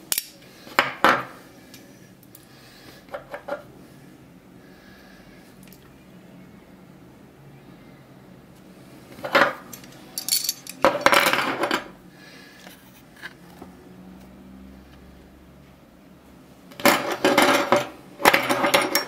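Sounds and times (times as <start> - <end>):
metal clattering on wooden table: 9.2 - 11.9, 16.8 - 19.0
metal shackles clinking: 9.7 - 10.8.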